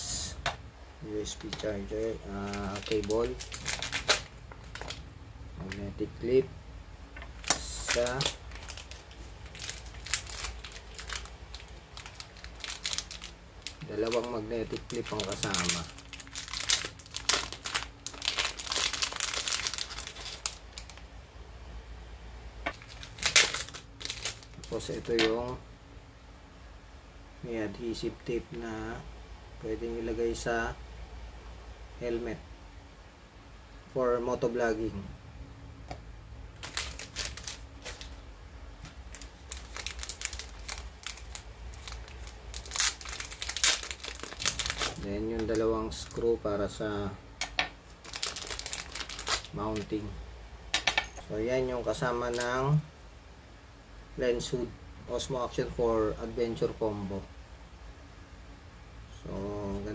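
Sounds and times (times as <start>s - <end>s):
plastic bag crinkling: 1.4s - 5.9s, 7.2s - 21.0s, 22.7s - 25.5s, 36.6s - 38.2s, 38.9s - 46.2s, 47.4s - 50.1s.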